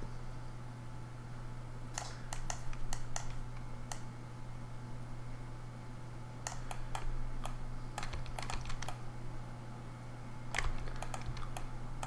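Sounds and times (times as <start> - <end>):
steady low hum: 0.0 - 12.0
computer keyboard and mouse clicks: 2.0 - 4.0, 6.4 - 9.0, 10.5 - 11.7.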